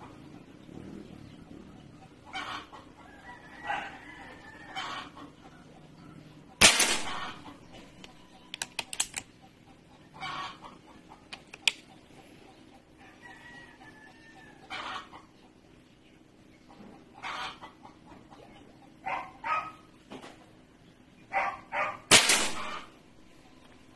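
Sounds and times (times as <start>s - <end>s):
chickens clucking: 0.0s - 23.9s
air rifle shot: 6.6s - 7.4s, 22.1s - 22.9s
metallic bolt clicks: 8.0s - 9.3s.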